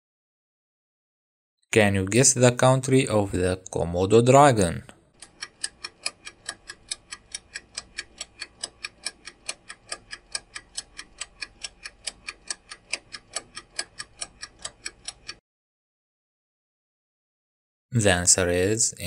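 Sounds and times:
timer clock ticking: 0:05.1 - 0:15.4.

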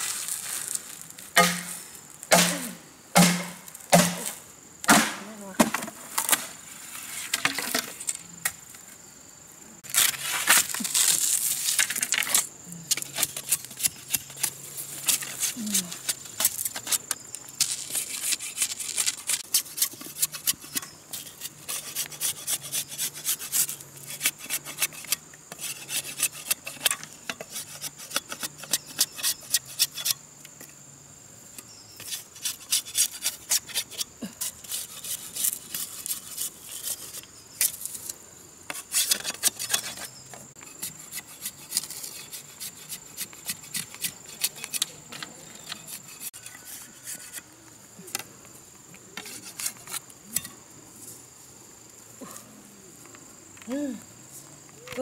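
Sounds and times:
high insect call: 0:00.0 - 0:55.0
knife scraping bamboo: 0:01.4 - 0:02.6, 0:09.9 - 0:30.2, 0:31.6 - 0:38.1, 0:38.7 - 0:48.2, 0:49.2 - 0:50.6.

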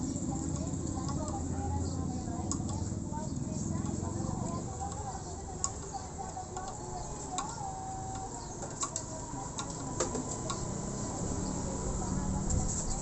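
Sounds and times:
metal tap clicking while cutting thread: 0:02.4 - 0:02.9.

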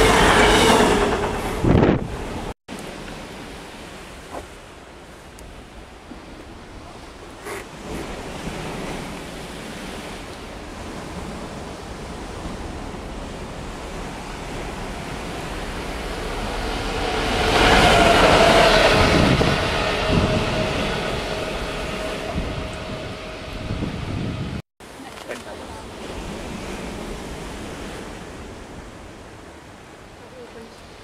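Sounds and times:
train wheels rolling on rails: 0:00.0 - 0:02.5, 0:10.9 - 0:24.2
diesel locomotive engine passing: 0:00.0 - 0:02.6, 0:10.9 - 0:24.6
sea noise: 0:00.0 - 0:31.0
wind: 0:00.0 - 0:31.0.

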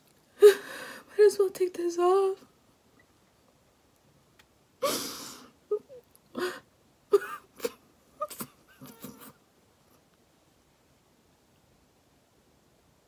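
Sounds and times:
woman crying and sobbing: 0:00.4 - 0:01.0, 0:04.8 - 0:09.3
long noisy breath: 0:00.4 - 0:01.1, 0:04.8 - 0:05.6.

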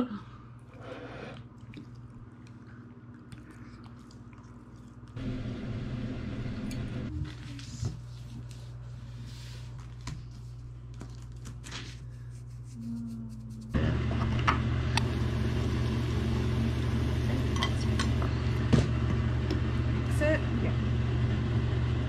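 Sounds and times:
baking paper rustling: 0:07.1 - 0:12.8
low hum: 0:12.1 - 0:22.0.

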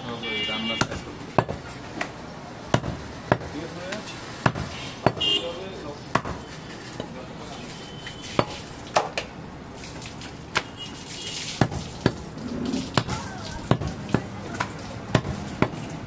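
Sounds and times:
knife chopping meat on wood: 0:00.8 - 0:02.1, 0:02.7 - 0:03.5, 0:04.4 - 0:05.2, 0:06.1 - 0:06.4, 0:13.0 - 0:15.9.

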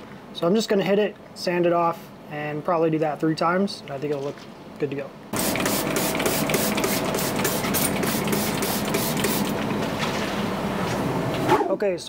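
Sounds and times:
steady mechanical hum: 0:00.0 - 0:12.0
spray bottle squirting: 0:05.4 - 0:09.6.

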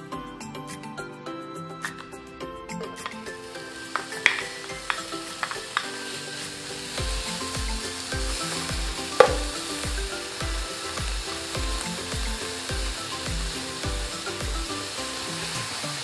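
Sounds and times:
background music with steady beat: 0:00.0 - 0:16.0
bacon sizzling in a pan: 0:03.0 - 0:16.0
spoon clicking on pan: 0:03.9 - 0:06.0, 0:09.2 - 0:09.6.

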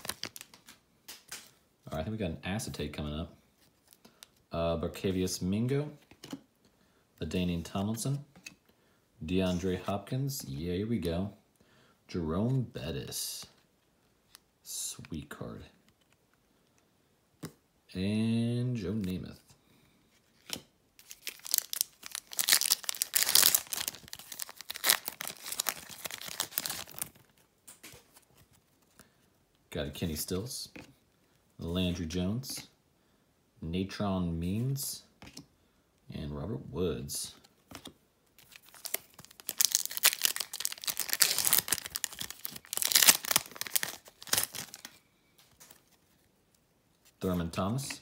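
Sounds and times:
foil wrapper tearing and crinkling: 0:00.0 - 0:00.6, 0:21.0 - 0:27.2, 0:38.4 - 0:44.9.

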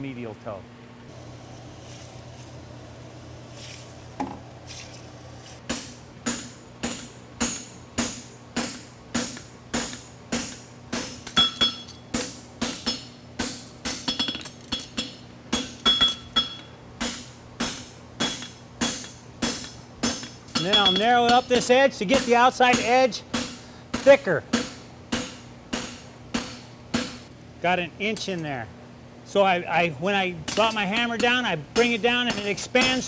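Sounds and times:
hammer striking steel on anvil: 0:05.7 - 0:27.3, 0:30.4 - 0:33.0.

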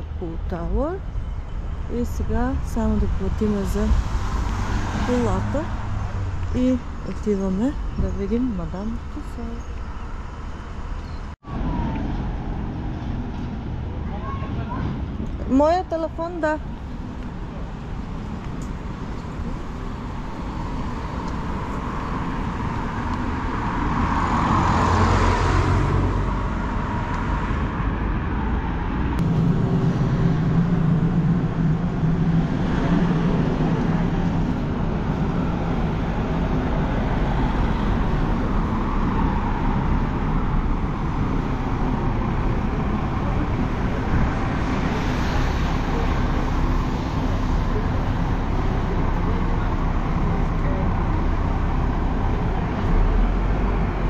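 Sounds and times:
cars passing: 0:00.0 - 0:54.0
vehicle engine humming: 0:00.0 - 0:54.0.

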